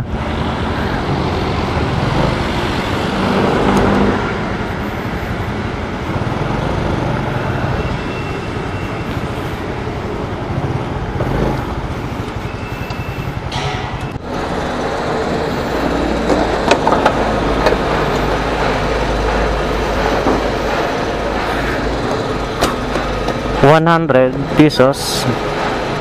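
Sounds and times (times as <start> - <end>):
motorcycle engine running: 0.0 - 26.0
road and wind noise: 0.0 - 26.0.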